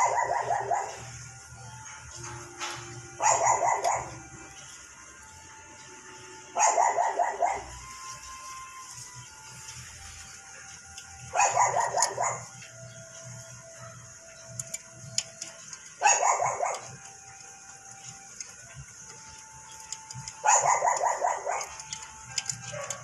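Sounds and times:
dog barking: 0:00.0 - 0:01.1, 0:03.2 - 0:04.2, 0:06.6 - 0:07.8, 0:11.3 - 0:12.5, 0:16.0 - 0:16.9, 0:20.4 - 0:21.9, 0:22.6 - 0:23.0.

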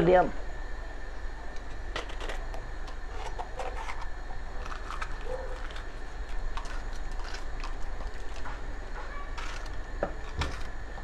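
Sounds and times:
crisp snaps and clicks: 0:01.6 - 0:08.6.

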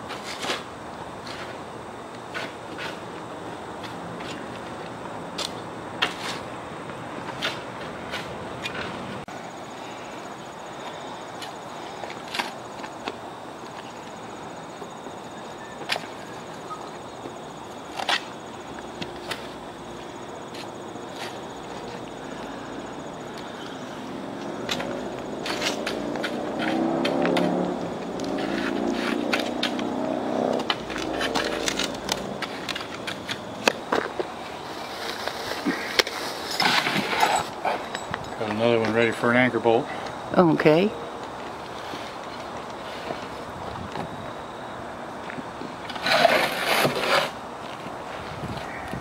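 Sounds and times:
shovel scraping and chopping soil: 0:00.0 - 0:01.6, 0:02.3 - 0:03.2, 0:05.4 - 0:06.5, 0:07.2 - 0:09.0, 0:17.9 - 0:18.4, 0:20.5 - 0:22.0, 0:24.6 - 0:27.6, 0:28.2 - 0:37.9, 0:45.8 - 0:47.8
engine hum: 0:00.0 - 0:39.0.

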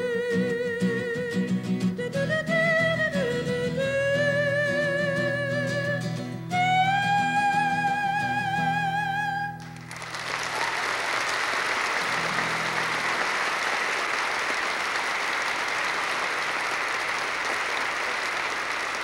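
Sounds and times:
acoustic guitar: 0:00.0 - 0:15.0
audience applauding: 0:09.6 - 0:19.0.

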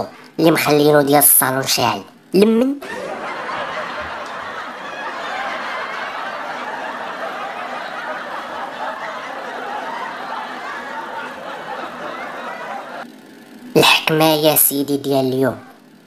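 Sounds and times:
canned audience laughter: 0:02.8 - 0:13.3.

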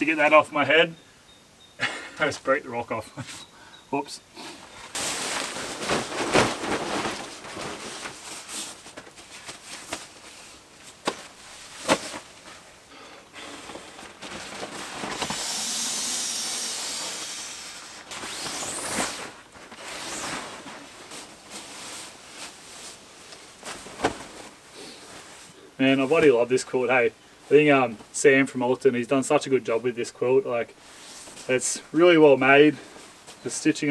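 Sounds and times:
nylon fabric rustling: 0:04.6 - 0:12.8, 0:13.4 - 0:26.4
rush of air: 0:15.0 - 0:19.2.

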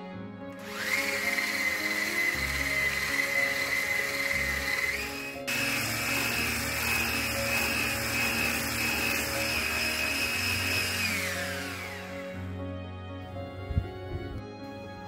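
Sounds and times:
electric whisk motor whining: 0:00.6 - 0:12.6.

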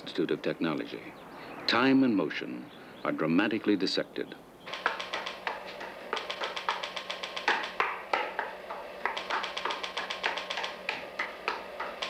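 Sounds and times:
faint steady hum: 0:00.0 - 0:12.0
light taps and clicks: 0:04.7 - 0:12.0.

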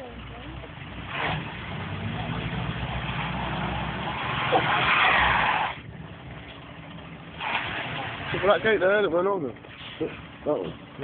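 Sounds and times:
diesel engine revving: 0:00.0 - 0:11.0
wheels spinning on snow: 0:01.0 - 0:05.8.

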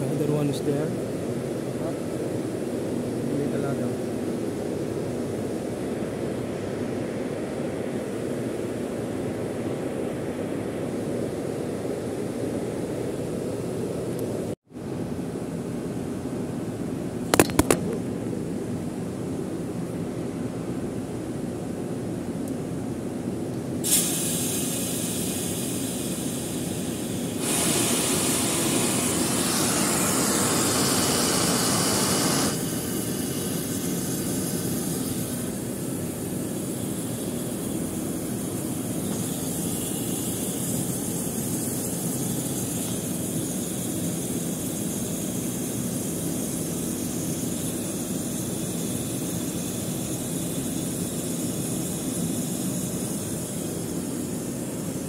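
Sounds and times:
valve venting hiss: 0:23.8 - 0:55.0
machinery drone: 0:24.7 - 0:55.0.

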